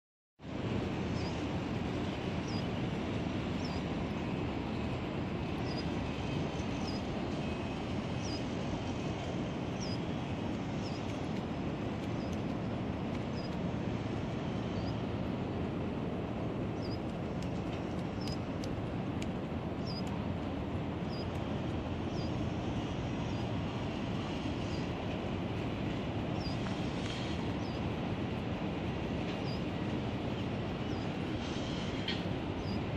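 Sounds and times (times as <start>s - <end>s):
distant city noise: 0.4s - 32.9s
wind buffeting microphone: 0.4s - 32.9s
small bird chirping: 19.8s - 20.1s.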